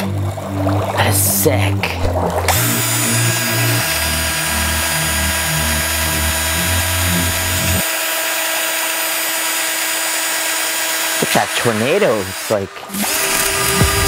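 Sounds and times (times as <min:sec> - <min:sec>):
low uneven hum: 0:00.0 - 0:07.8
power drill running: 0:02.5 - 0:14.0.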